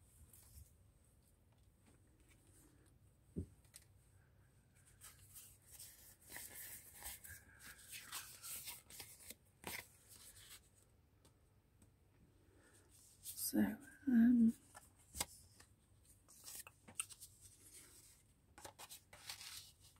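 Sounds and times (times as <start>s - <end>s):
paper rustling and sliding: 4.9s - 10.7s, 16.3s - 19.9s.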